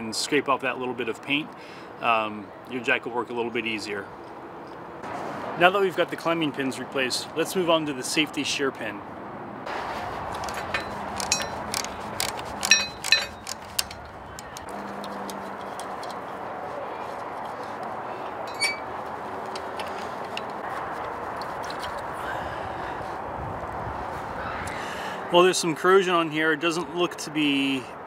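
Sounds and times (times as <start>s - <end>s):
metallic wrench clicks: 10.4s - 14.7s.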